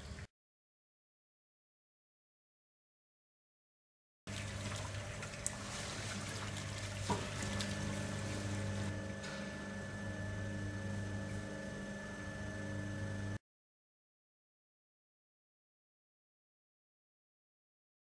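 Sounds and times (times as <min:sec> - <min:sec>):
low machine hum: 0:00.0 - 0:00.3, 0:04.3 - 0:13.4.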